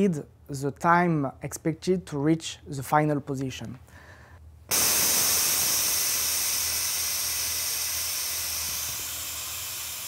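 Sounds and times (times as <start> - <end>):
compressed air hissing: 4.7 - 10.0.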